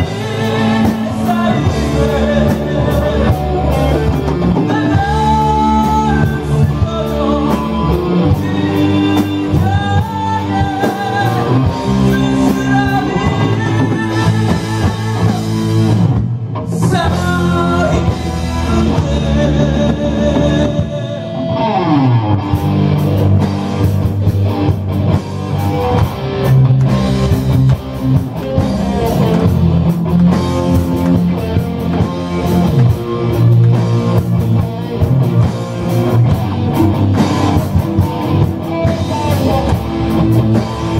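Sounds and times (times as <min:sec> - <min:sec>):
man singing: 0:00.0 - 0:22.1, 0:38.4 - 0:40.9
rock band playing live: 0:00.0 - 0:40.9.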